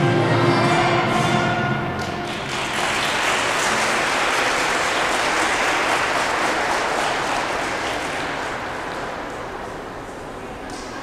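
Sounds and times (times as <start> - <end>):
audience applauding: 2.0 - 9.8.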